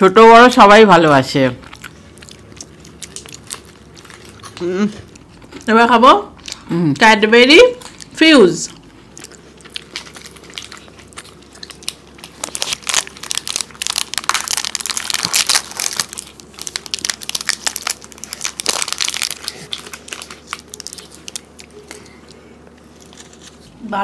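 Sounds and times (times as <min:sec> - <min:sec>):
plastic wrappers crinkling: 0:00.3 - 0:05.7, 0:07.6 - 0:23.7.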